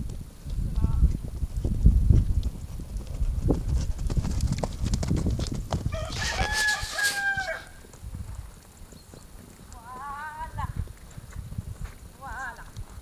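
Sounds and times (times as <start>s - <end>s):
wind on microphone: 0.0s - 8.9s, 9.6s - 13.0s
horse hoofbeats on sand: 0.0s - 13.0s
rooster crowing: 5.9s - 7.8s.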